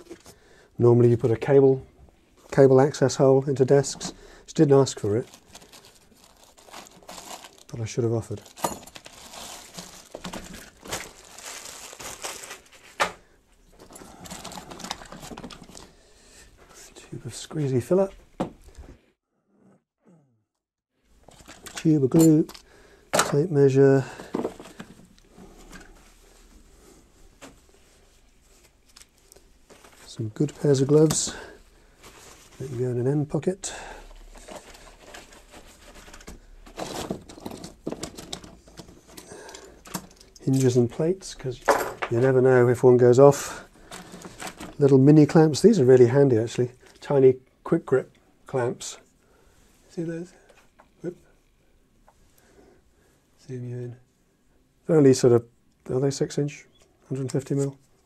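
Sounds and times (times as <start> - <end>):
plastic bag rustling: 3.8 - 16.0, 24.0 - 45.8
fabric bag rustling: 5.0 - 13.0
tools clattering: 8.5 - 9.2, 21.3 - 22.6, 36.0 - 40.8.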